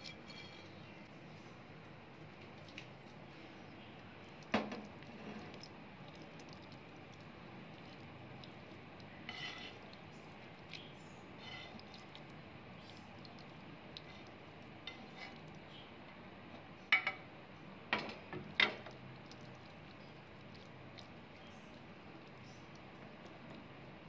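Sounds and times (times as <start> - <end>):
wet pasta moved in glass dish: 7.8 - 15.5.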